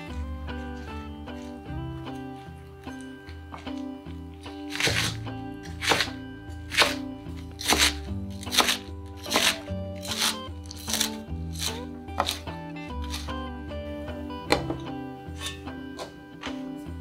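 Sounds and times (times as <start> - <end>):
background music: 0.0 - 17.0
knife cutting onto wooden board: 4.7 - 7.0, 7.6 - 12.4.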